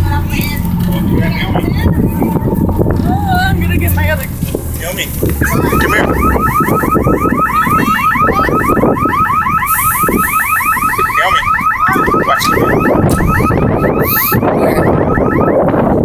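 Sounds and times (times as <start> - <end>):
low engine rumble: 0.0 - 16.0
wind: 0.0 - 16.0
rapid electronic chirping: 5.4 - 15.6.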